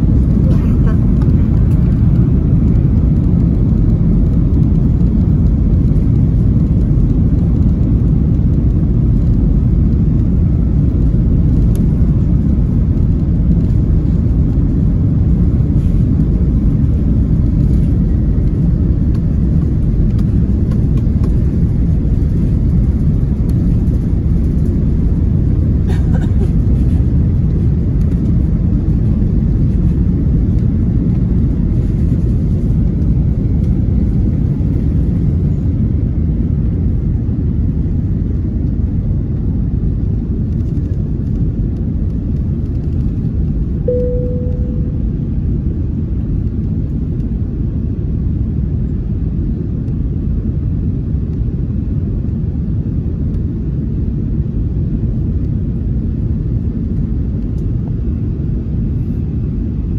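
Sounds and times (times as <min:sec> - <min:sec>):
runway rumble: 0:00.0 - 0:47.6
aircraft engine noise: 0:00.0 - 0:59.9.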